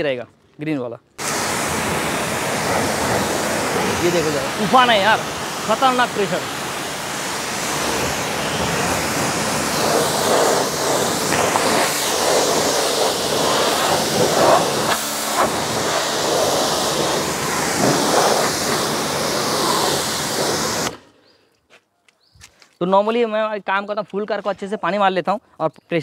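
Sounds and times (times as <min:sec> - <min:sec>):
pressure washer spray hissing: 0:01.2 - 0:21.1.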